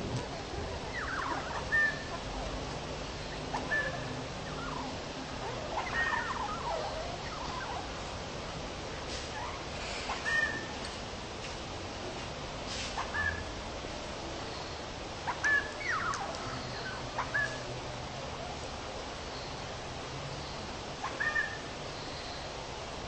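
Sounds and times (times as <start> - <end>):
budgerigars chattering: 0.8 - 7.9.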